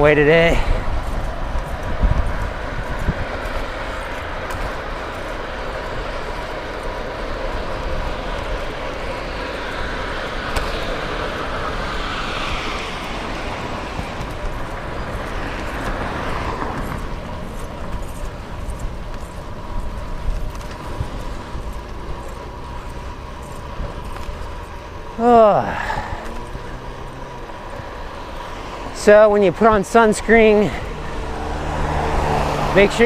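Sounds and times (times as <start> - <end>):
wind on microphone: 0.0 - 24.7
passing traffic: 0.0 - 33.0.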